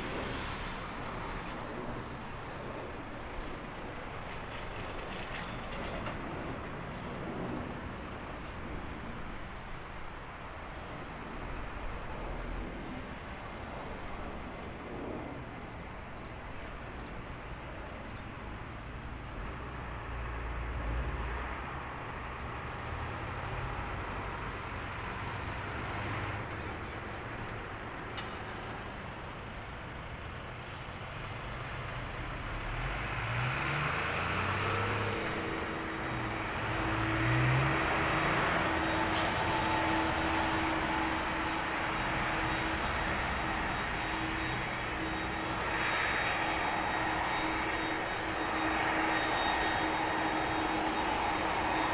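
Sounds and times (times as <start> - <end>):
jet engines rushing: 0.0 - 31.0, 31.8 - 51.9.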